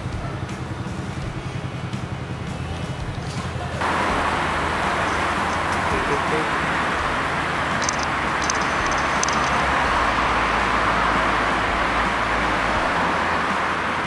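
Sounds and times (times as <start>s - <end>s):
car engine running: 0.0s - 14.0s
street traffic noise: 0.0s - 14.0s
faint clicks: 7.8s - 9.6s.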